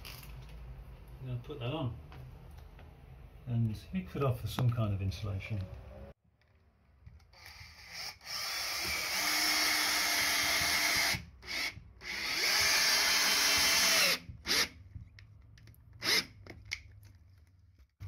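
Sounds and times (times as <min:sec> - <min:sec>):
cordless drill driving a bolt: 0:07.4 - 0:14.8.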